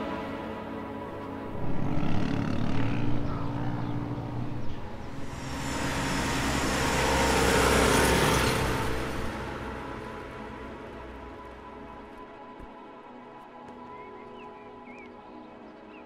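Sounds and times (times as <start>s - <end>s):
quad bike engine running hard: 1.4s - 9.6s
rushing noise: 4.8s - 11.3s.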